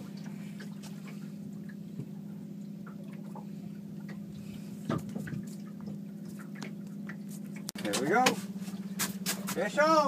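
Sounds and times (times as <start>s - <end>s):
boat motor humming: 0.0s - 10.0s
light water sounds: 0.0s - 10.0s
boat bump: 4.1s - 9.8s.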